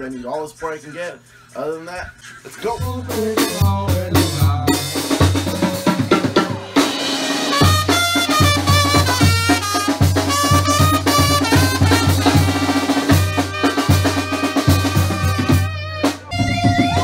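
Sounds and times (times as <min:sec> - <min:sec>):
drum kit: 0:02.7 - 0:17.0
bass line: 0:02.8 - 0:06.5, 0:07.5 - 0:17.0
trumpet melody: 0:06.7 - 0:17.0
clarinet melody: 0:07.4 - 0:17.0.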